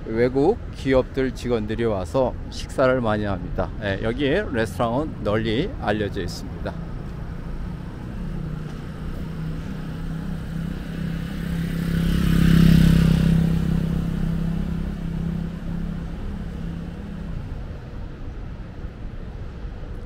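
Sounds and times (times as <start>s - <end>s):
motorcycle engine passing: 7.7s - 17.6s.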